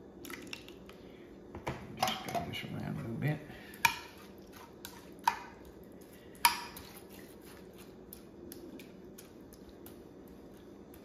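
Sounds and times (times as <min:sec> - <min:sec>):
soft wet squishing: 0:03.6 - 0:11.0.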